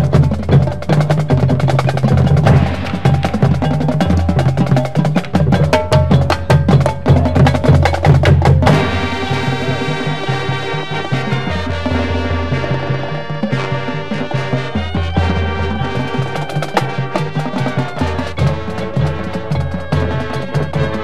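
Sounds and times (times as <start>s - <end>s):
drums playing fast: 0.0s - 21.0s
mallet percussion strikes: 0.2s - 9.8s
horns holding a chord: 8.6s - 21.0s.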